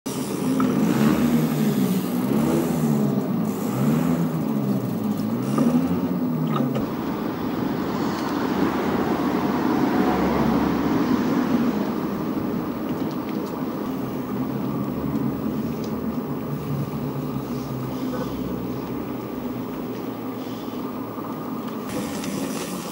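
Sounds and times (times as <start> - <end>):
off-road vehicle engine revving: 0.0 - 12.9.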